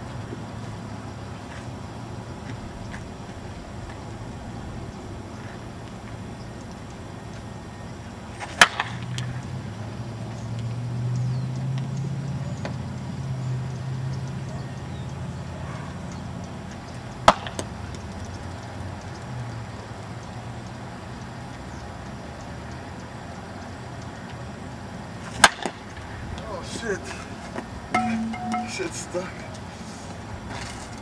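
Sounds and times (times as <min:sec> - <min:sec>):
bat hitting softball: 0:08.5 - 0:09.0, 0:17.2 - 0:17.6, 0:25.4 - 0:25.8, 0:28.0 - 0:29.0.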